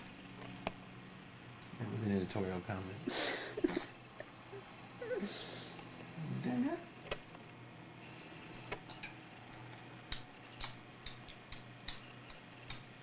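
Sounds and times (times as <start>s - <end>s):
sharp clicks: 10.1s - 12.9s.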